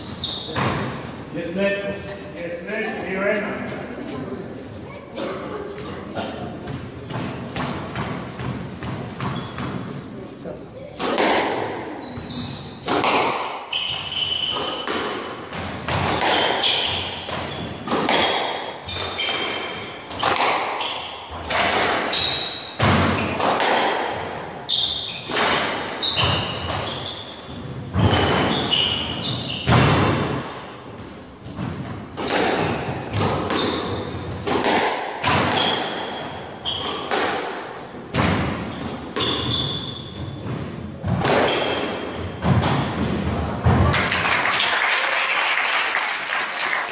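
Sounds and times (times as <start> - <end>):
shoes squeaking on wooden floor: 0.0 - 1.1, 5.7 - 10.2, 11.9 - 21.4, 22.1 - 23.5, 24.6 - 34.6, 35.3 - 37.2, 38.3 - 43.3
squash ball hitting rackets and walls: 0.0 - 1.2, 6.5 - 10.1, 10.8 - 44.2.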